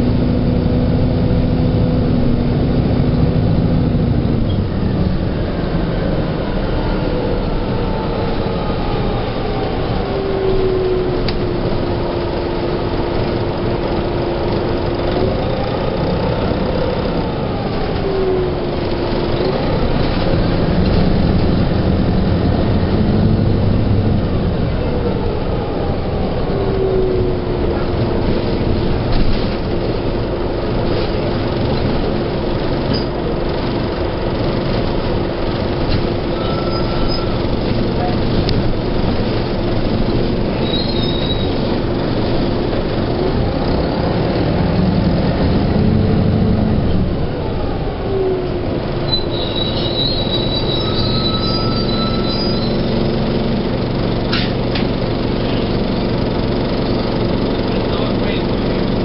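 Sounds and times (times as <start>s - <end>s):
bus engine rumble: 0.0s - 59.0s
drivetrain whine: 0.0s - 59.0s.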